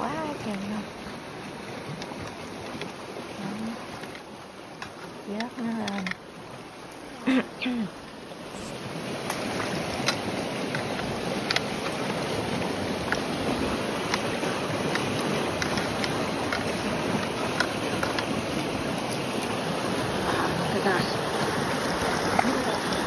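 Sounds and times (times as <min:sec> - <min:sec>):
water lapping over pebbles: 0:00.0 - 0:23.0.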